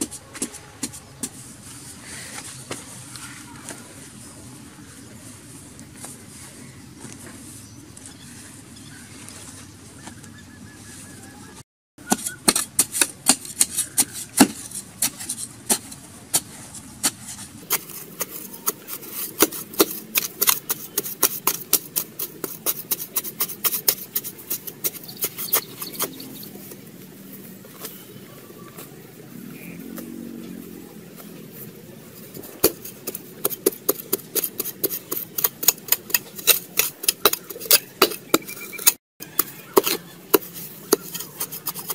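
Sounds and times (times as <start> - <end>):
soil clods rattling on ground: 12.0 - 29.0, 31.2 - 41.9
hoe scraping dry earth: 12.0 - 41.9.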